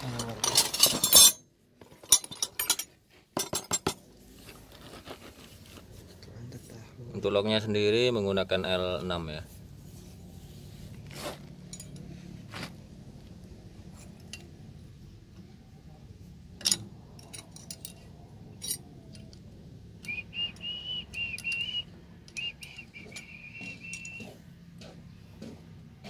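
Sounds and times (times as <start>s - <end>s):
metal clicks and clinks: 0.0s - 4.0s, 11.6s - 12.1s, 13.9s - 14.7s, 16.5s - 20.2s, 21.2s - 24.3s.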